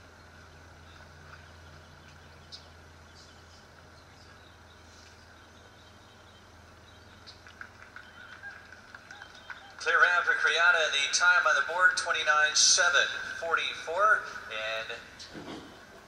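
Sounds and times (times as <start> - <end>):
background hum and hiss: 0.0 - 16.0.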